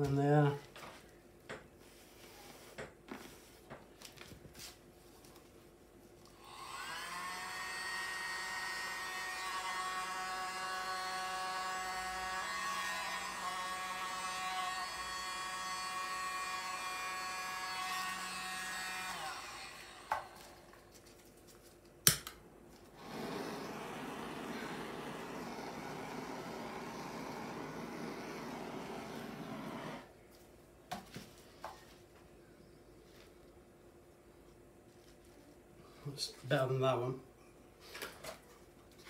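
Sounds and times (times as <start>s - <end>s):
electric blower motor whining: 6.4s - 20.8s, 23.0s - 30.1s
rush of air from blower: 23.0s - 30.1s.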